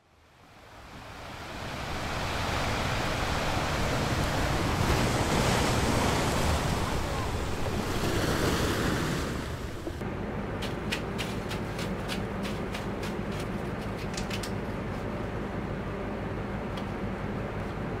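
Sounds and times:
sea noise: 0.1 - 10.0
wind buffeting microphone: 0.9 - 10.0.

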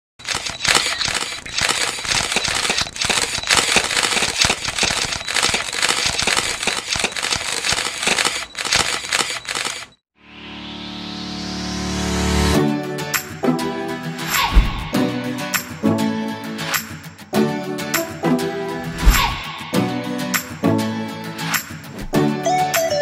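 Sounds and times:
camera shutters clicking: 0.2 - 10.0.

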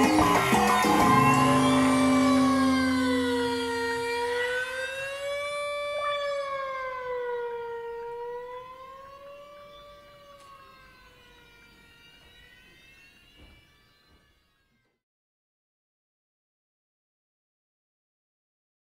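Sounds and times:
low drone: 0.0 - 8.0
wavering electronic tone: 0.0 - 14.8.

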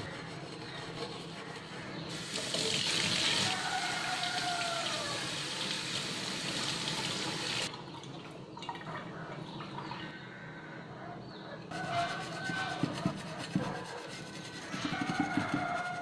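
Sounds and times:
steel wool scrubbing a pan: 0.0 - 2.7, 11.7 - 16.0.

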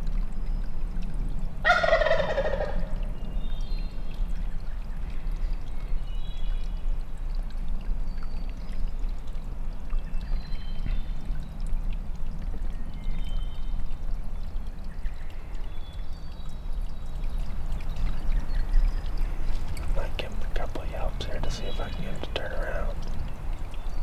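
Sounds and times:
running water: 0.0 - 24.0
birds chirping: 14.9 - 24.0.

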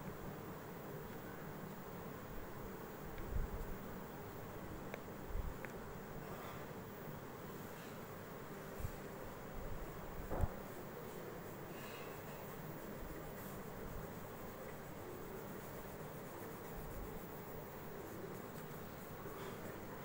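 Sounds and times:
steady background hiss: 0.0 - 20.0
pencil scratching on paper: 11.1 - 20.0.

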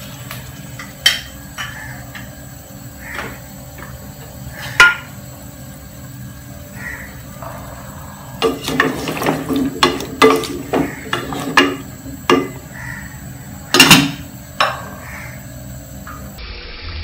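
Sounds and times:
wooden spatula scraping a saucepan: 8.4 - 12.5.

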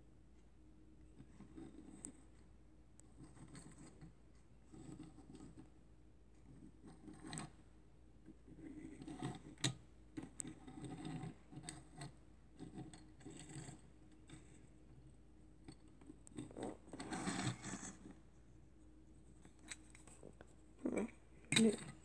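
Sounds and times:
toy wheels rolling on desk: 8.5 - 14.6, 15.7 - 18.2.

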